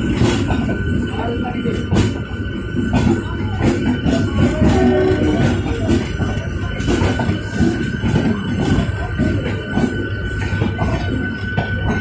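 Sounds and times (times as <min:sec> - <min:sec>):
train rumble: 0:00.0 - 0:12.0.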